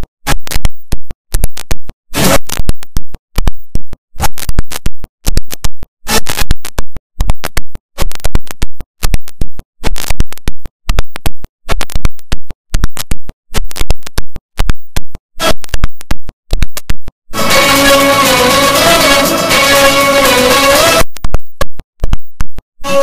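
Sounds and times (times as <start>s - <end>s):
loud stuttering music: 17.3s - 21.1s.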